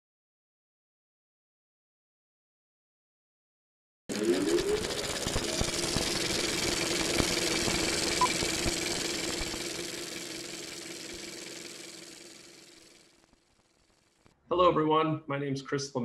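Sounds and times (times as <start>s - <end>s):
steady hum: 4.1s - 14.3s.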